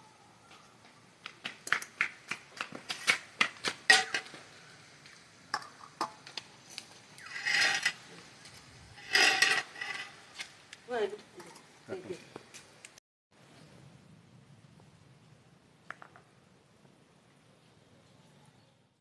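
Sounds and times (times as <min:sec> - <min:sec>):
spoon scraping dish: 0:09.0 - 0:10.1.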